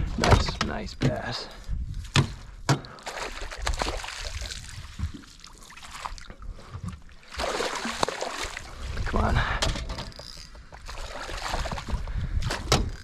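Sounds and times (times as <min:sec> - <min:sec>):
water splashing and trickling: 0:02.7 - 0:13.0.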